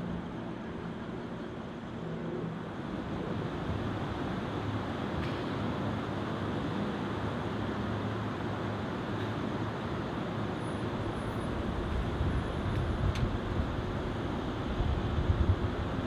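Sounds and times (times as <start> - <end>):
steady rumbling background noise: 0.0 - 16.0.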